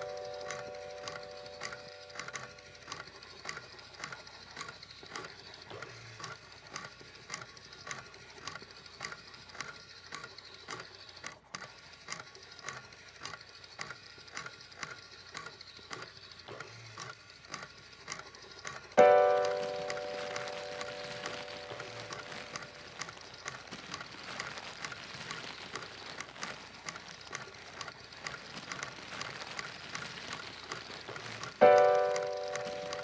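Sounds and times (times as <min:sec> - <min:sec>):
regular clicking: 0:00.0 - 0:33.0
faint crackling hiss: 0:19.0 - 0:27.1.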